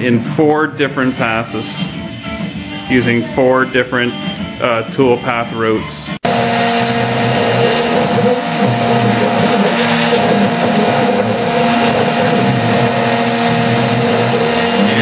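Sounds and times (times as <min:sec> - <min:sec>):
router bit cutting wood: 0:06.2 - 0:15.0
router motor whine: 0:06.2 - 0:15.0.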